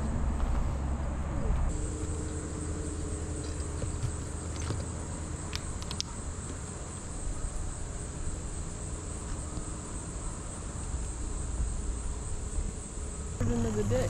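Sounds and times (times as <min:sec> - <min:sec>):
low rumble: 0:00.0 - 0:14.0
high-pitched insect chorus: 0:01.7 - 0:14.0
sharp clicks: 0:04.5 - 0:06.2.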